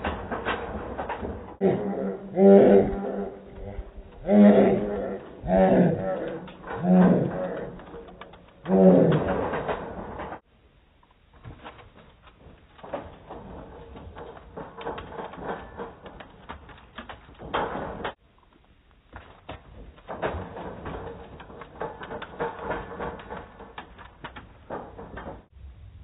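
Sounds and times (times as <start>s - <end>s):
dog's paws on dirt: 2.9s - 10.4s, 11.0s - 25.5s
running feet on dirt: 11.4s - 22.4s.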